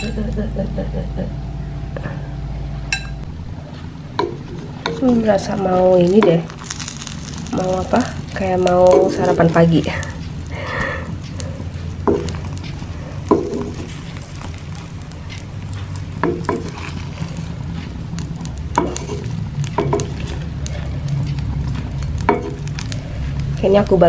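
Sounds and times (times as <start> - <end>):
steady low hum: 0.0 - 24.0
bread frying with faint sizzle: 4.1 - 24.0
spatula scraping frying pan: 4.3 - 18.0, 18.7 - 23.6.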